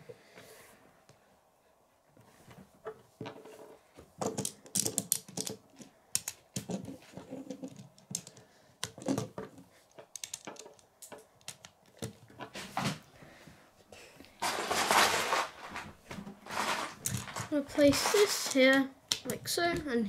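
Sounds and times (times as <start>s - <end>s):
plastic toy parts clicking: 4.2s - 6.9s, 7.5s - 9.3s, 9.9s - 12.4s, 18.1s - 19.4s.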